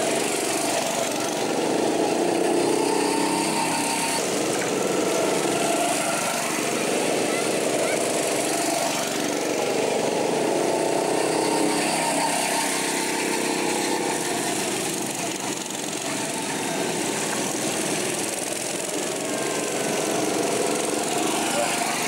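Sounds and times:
go-kart engines running: 0.0s - 22.0s.

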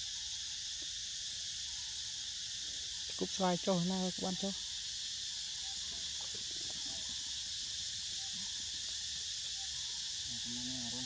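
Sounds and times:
insects chorus hissing: 0.0s - 11.0s.

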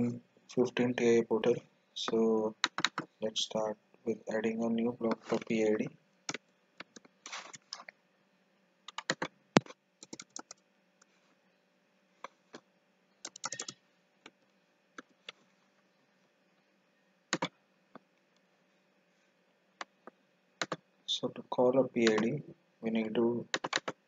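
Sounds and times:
computer keyboard typing: 2.1s - 3.1s, 8.9s - 10.6s, 13.2s - 13.8s, 17.3s - 17.5s, 20.6s - 20.8s, 22.0s - 22.4s, 23.5s - 24.0s.

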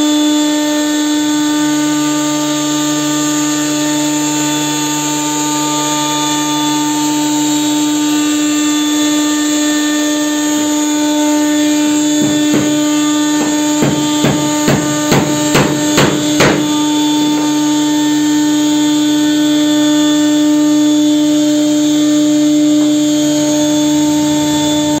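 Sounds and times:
router spindle high whine: 0.0s - 25.0s
hammer knocking on wooden board: 12.0s - 16.8s.

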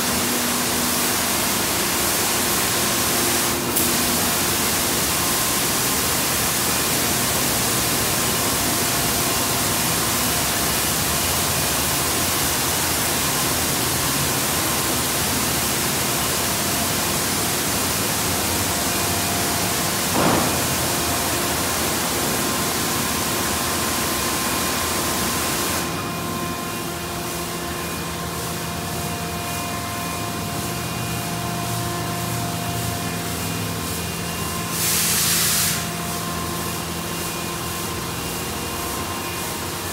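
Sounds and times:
high-pressure water spray hissing: 0.0s - 25.9s, 33.1s - 38.9s
car wash motors and pumps humming: 0.0s - 39.9s.

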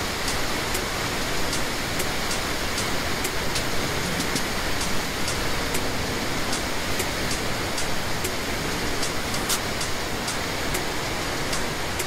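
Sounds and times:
waterfall rushing: 0.0s - 12.0s
sharp high ticks: 1.5s - 5.9s, 6.5s - 8.4s, 9.0s - 12.0s.

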